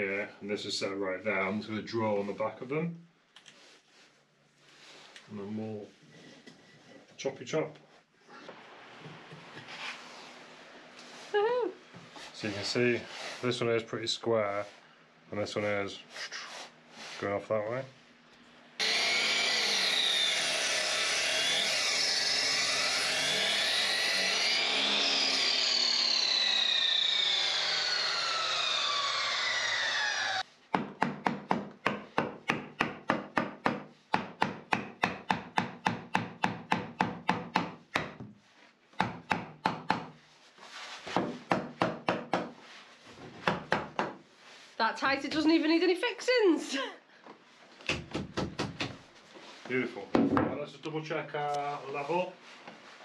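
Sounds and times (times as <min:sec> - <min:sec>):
wood being sawn: 0:18.8 - 0:30.5
hammer knocking wooden block: 0:30.7 - 0:38.3, 0:39.0 - 0:40.1, 0:41.2 - 0:42.6, 0:43.4 - 0:44.2, 0:47.9 - 0:49.0.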